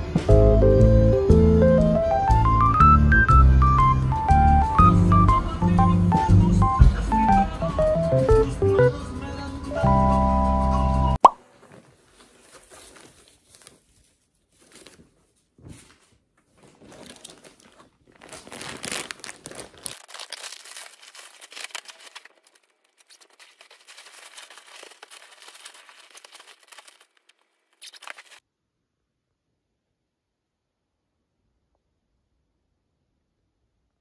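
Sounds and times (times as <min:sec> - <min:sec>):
cushion covers rustling: 0:11.4 - 0:22.1
plastic bag crinkling: 0:11.4 - 0:28.4.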